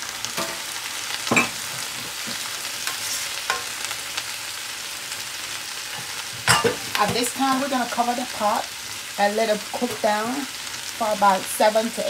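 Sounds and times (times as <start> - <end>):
vegetables sizzling in pot: 0.0 - 12.0.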